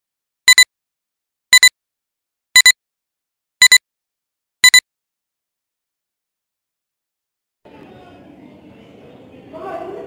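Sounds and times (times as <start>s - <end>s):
short double beeps: 0.5s - 0.7s, 1.5s - 1.7s, 2.6s - 2.8s, 3.6s - 3.8s, 4.6s - 4.8s.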